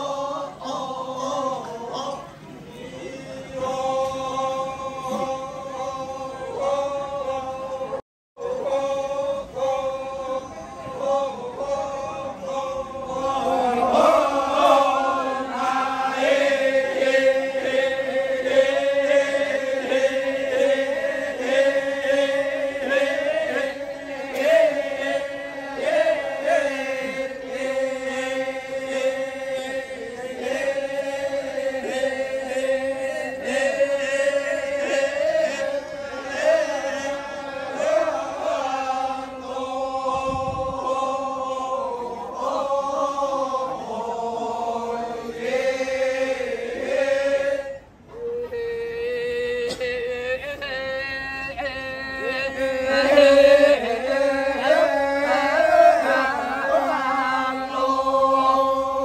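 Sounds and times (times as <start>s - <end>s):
group of voices chanting: 0.0s - 48.8s, 49.6s - 59.0s.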